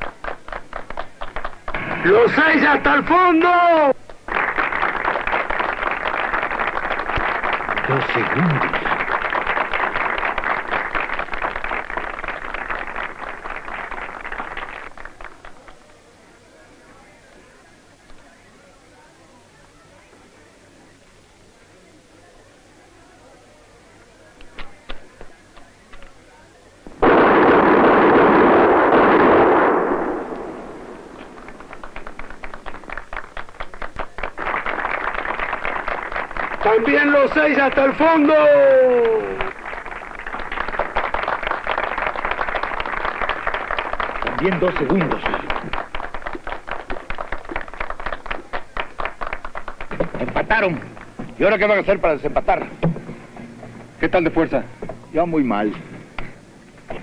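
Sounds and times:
crowd applauding: 0:00.0 - 0:15.9, 0:29.8 - 0:52.7.

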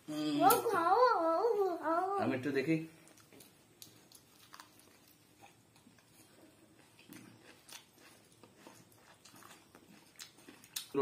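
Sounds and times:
man biting and chewing: 0:03.1 - 0:11.0.

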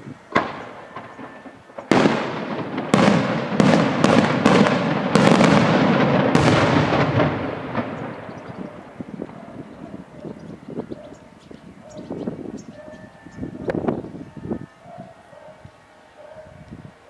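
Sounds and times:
fireworks bangs: 0:00.0 - 0:10.9
echoing rumble: 0:00.3 - 0:10.8.

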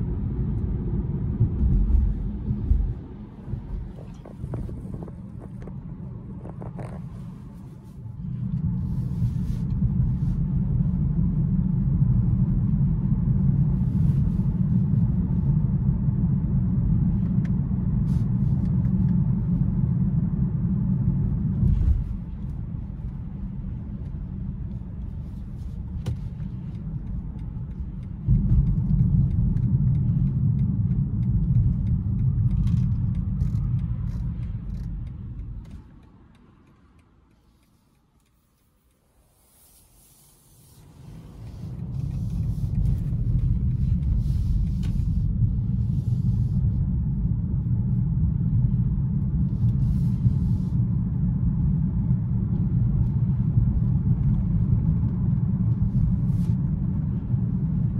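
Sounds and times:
road and drivetrain rumble in car: 0:00.0 - 0:57.9.

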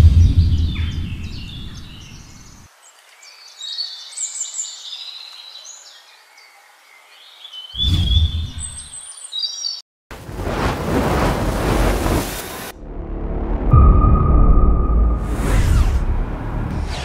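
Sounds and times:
deep low boom: 0:00.0 - 0:02.3, 0:12.8 - 0:16.8
birds chirping: 0:00.0 - 0:09.8.

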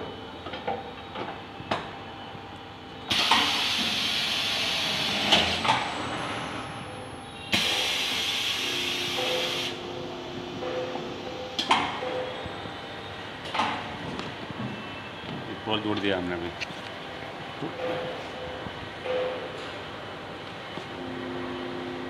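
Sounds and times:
welding machine hissing: 0:07.5 - 0:09.8.

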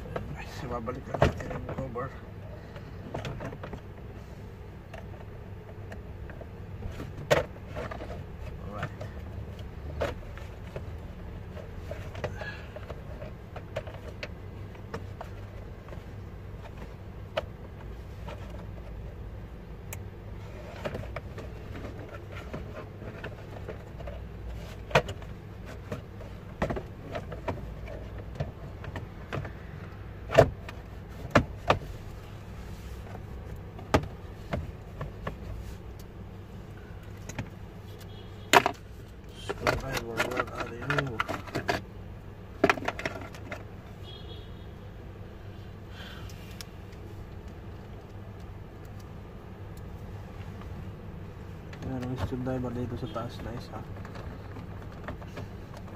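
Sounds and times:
steady low hum: 0:00.0 - 0:55.9.

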